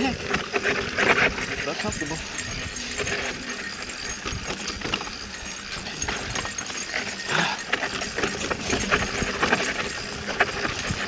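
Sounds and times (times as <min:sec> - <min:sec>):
bike clicks and rattles: 0:00.0 - 0:11.0
tyres crunching over dirt: 0:00.0 - 0:11.0
wind rumble on microphone: 0:07.9 - 0:11.0.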